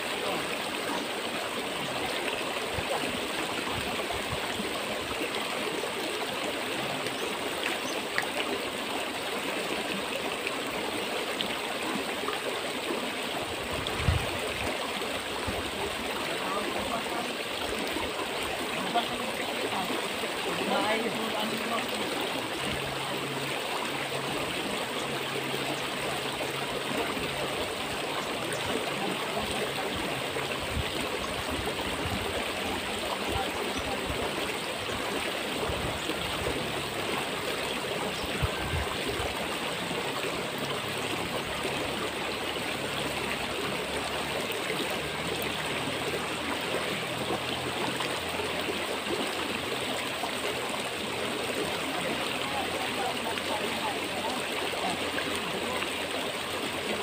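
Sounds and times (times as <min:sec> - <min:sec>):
flowing river water: 0:00.0 - 0:57.0.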